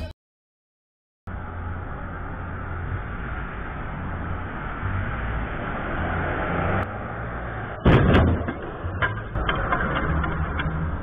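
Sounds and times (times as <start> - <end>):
vehicle engine and tyres rumbling: 1.3 - 11.0
loud bang: 7.8 - 10.0.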